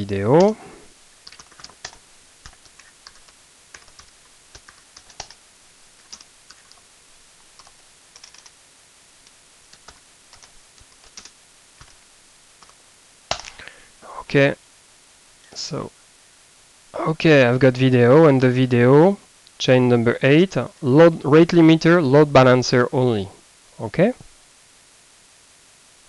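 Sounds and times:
typing on keyboard: 1.2s - 5.4s, 6.0s - 6.8s, 7.6s - 8.5s, 9.7s - 12.0s.

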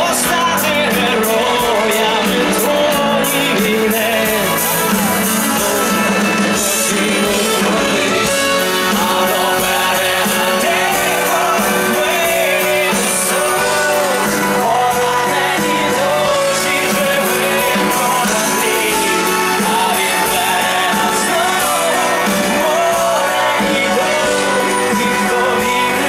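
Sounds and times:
live rock band: 0.0s - 26.0s.

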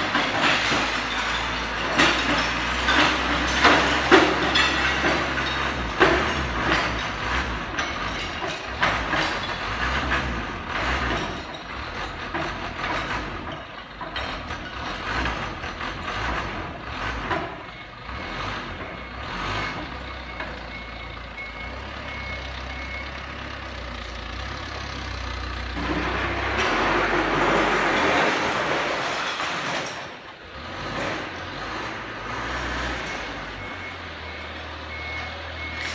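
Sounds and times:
knocks and clatter: 0.0s - 20.8s, 24.3s - 34.0s
forklift engine running: 0.0s - 35.9s
reversing alarm tone: 33.1s - 35.9s.

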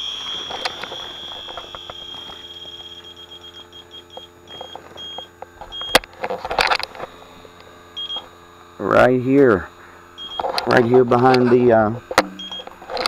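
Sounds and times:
leak detector alarm tone and beeps: 0.0s - 6.1s, 7.9s - 8.4s, 10.1s - 10.8s, 12.2s - 12.8s
handling noise: 0.0s - 8.7s.

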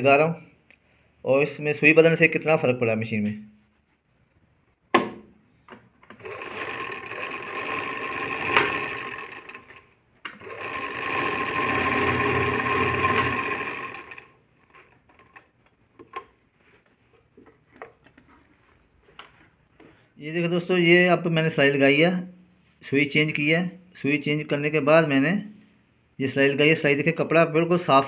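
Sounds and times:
sewing machine clicks: 5.7s - 16.3s
sewing machine stitching: 6.0s - 15.4s.

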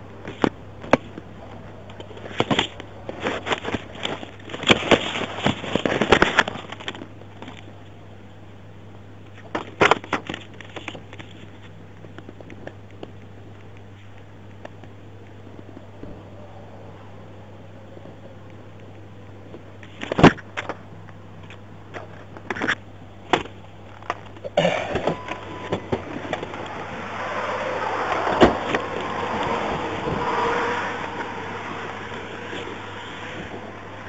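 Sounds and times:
steady low hum: 0.0s - 34.0s
passing traffic road noise: 24.7s - 34.0s.

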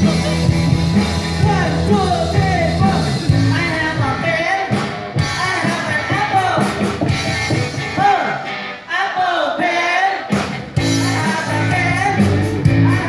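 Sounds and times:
bass line: 0.0s - 8.1s, 10.6s - 13.0s
live rock band playing: 0.0s - 8.9s, 10.3s - 13.0s
man singing into a microphone: 1.4s - 6.7s, 8.0s - 13.0s.

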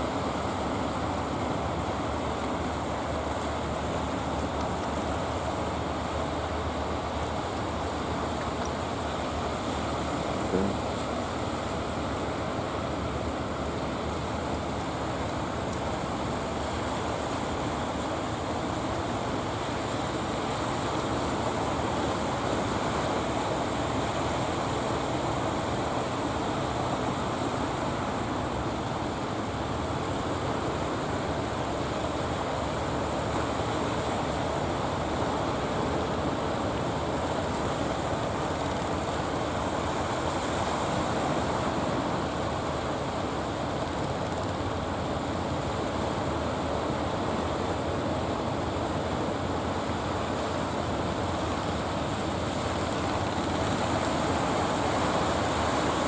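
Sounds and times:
boat engines running: 0.0s - 56.0s
wind: 0.0s - 56.0s
surf rushing: 14.7s - 56.0s.

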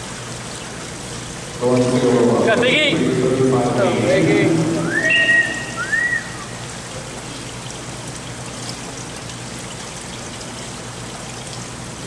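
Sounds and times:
rushing trickling water: 0.0s - 12.0s
brief high tone: 4.8s - 6.6s.

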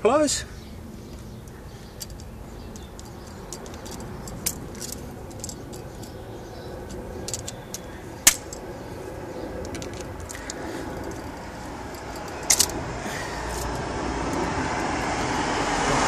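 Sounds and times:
sharp clicks: 1.1s - 8.7s, 9.6s - 12.8s
metal tools clinking on engine parts: 1.4s - 14.5s.

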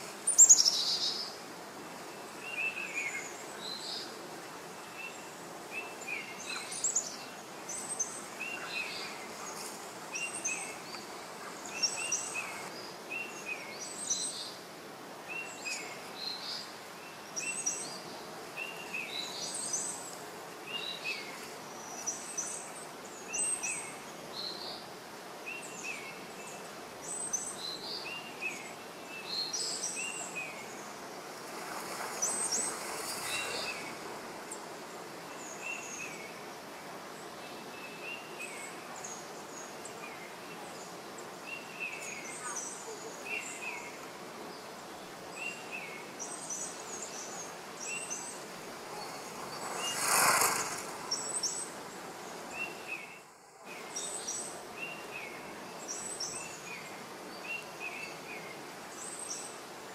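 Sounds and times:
small birds chirping: 0.0s - 14.6s
steady background hiss: 0.0s - 59.9s.

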